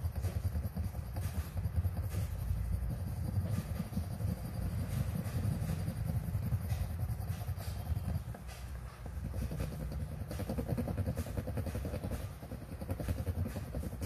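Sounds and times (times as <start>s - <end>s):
toothpick scratching on coin: 0.0s - 14.0s
steady low rumble: 0.1s - 10.7s.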